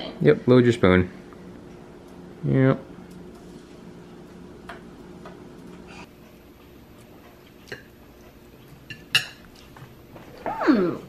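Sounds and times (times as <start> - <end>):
low steady hum: 0.0 - 11.0
fork clinking on ceramic plate: 8.9 - 9.5.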